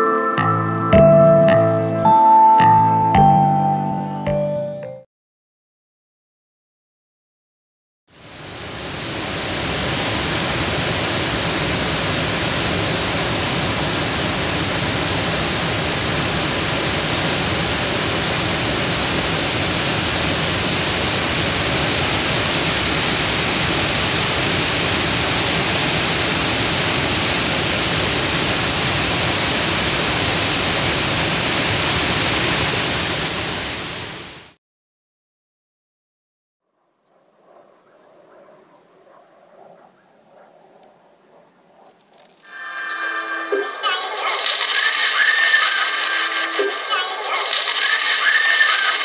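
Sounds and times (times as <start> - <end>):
water pouring over a weir: 43.9 - 49.0.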